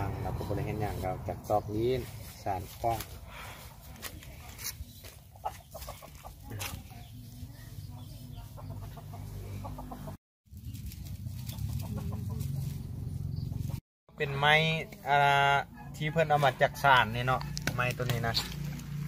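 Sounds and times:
chickens clucking: 4.8 - 10.2, 11.0 - 13.8.

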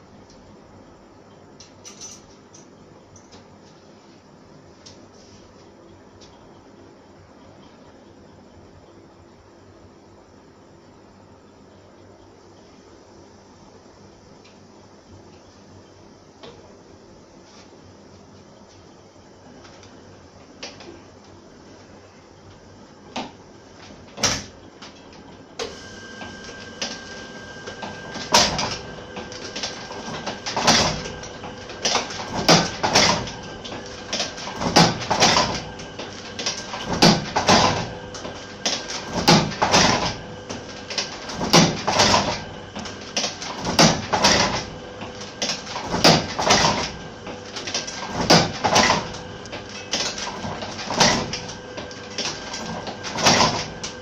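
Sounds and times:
steady machine hum: 2.7 - 54.0
printing press clacking: 25.6 - 54.0.

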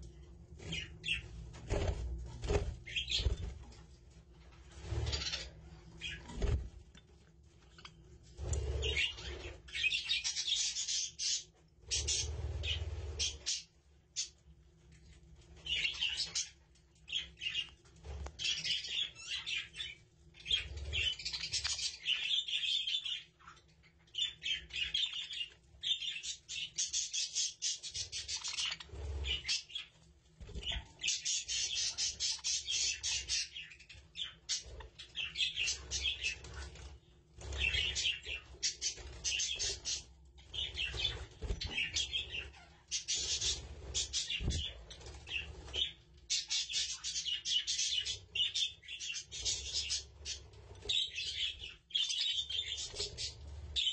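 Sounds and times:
budgerigars chattering: 31.1 - 33.7.

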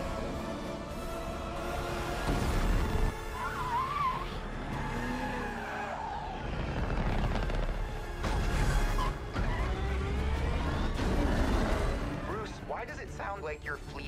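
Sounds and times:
film music score: 0.0 - 14.0
vehicle engines running: 4.4 - 14.0.

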